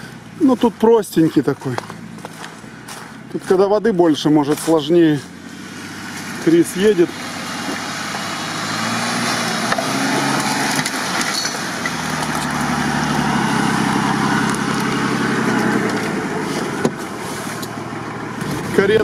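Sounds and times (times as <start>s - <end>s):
suv engine driving through mud: 0.0s - 19.0s.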